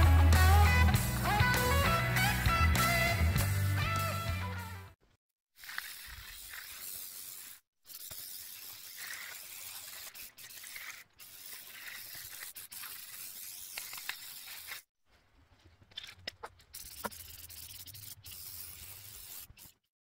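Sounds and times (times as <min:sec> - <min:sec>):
aerosol spray can hissing: 0:05.6 - 0:14.8, 0:16.7 - 0:19.9.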